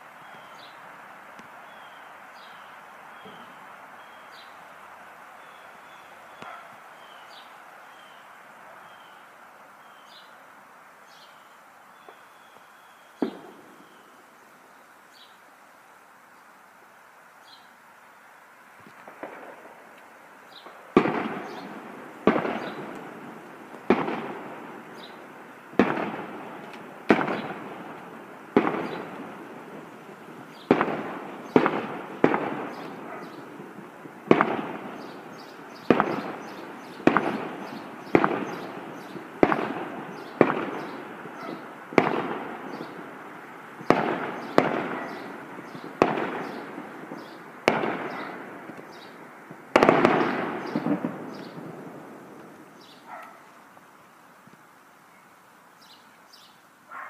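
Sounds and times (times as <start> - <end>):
firecrackers banging: 13.2 - 14.1, 18.8 - 53.3.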